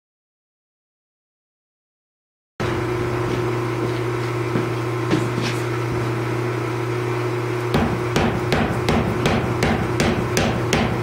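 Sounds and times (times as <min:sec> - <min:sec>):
power hammer motor humming: 0:02.6 - 0:11.0
hammer striking hot metal: 0:07.7 - 0:11.0.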